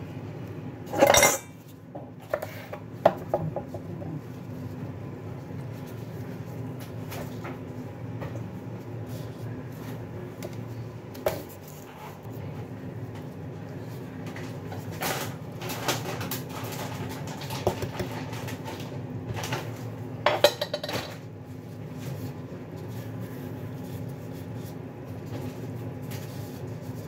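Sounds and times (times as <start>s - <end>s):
steady low hum: 0.0s - 15.7s.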